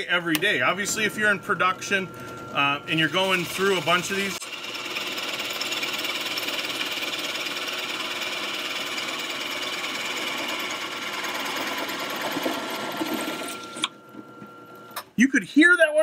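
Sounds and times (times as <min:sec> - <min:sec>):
drill press boring through wood: 0:03.1 - 0:13.9.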